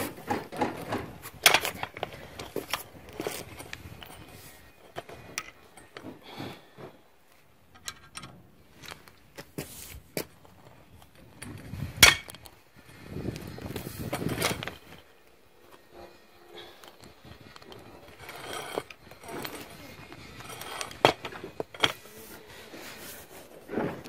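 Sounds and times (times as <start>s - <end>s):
rustling scrape of handling: 9.4s - 10.2s, 13.4s - 24.0s.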